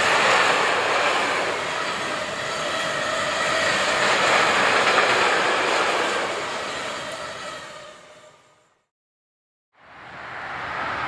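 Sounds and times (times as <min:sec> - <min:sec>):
freight train wheels on rails: 0:00.0 - 0:08.8.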